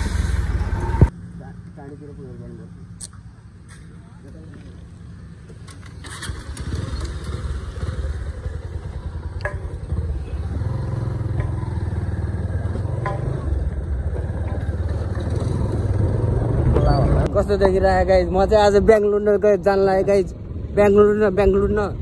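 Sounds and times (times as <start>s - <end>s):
motorcycle engine running: 4.9s - 17.3s.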